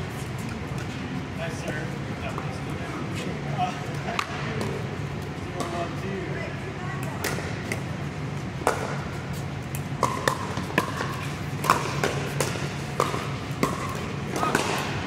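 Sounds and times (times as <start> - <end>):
low hum of hall: 0.0 - 15.0.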